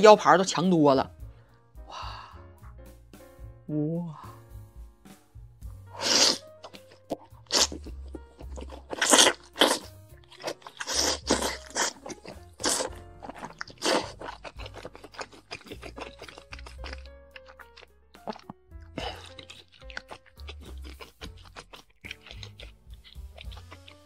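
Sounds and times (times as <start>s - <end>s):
soft background music: 0.0s - 24.0s
slurping and chewing noodles: 5.9s - 24.0s.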